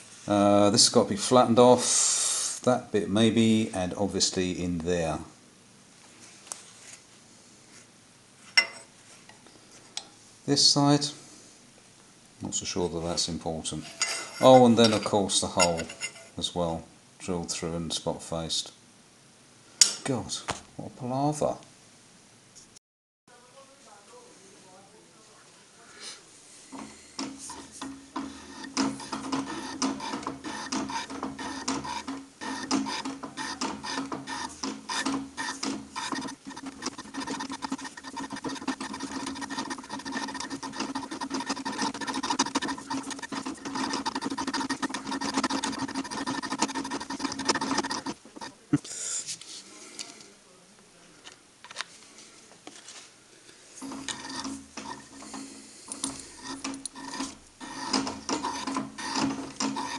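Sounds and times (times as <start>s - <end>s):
milling machine hum: 26.7s - 48.6s, 53.8s - 59.9s
scratchy metal cutting noise: 26.7s - 48.6s, 53.8s - 59.9s.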